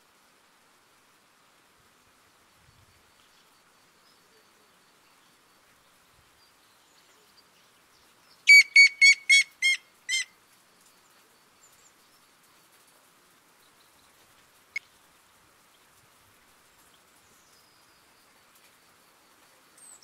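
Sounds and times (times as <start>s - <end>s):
woodpecker whistled notes: 8.5s - 10.3s.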